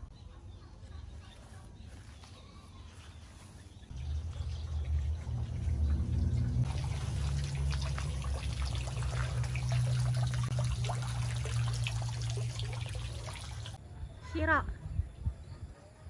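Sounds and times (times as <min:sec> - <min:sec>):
water trickling into pond: 0:03.0 - 0:13.8
low hum: 0:03.9 - 0:13.8.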